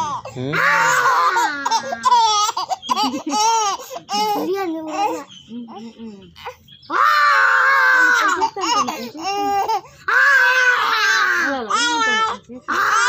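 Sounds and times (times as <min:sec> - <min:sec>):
child crying: 0:00.0 - 0:05.2, 0:06.9 - 0:13.0.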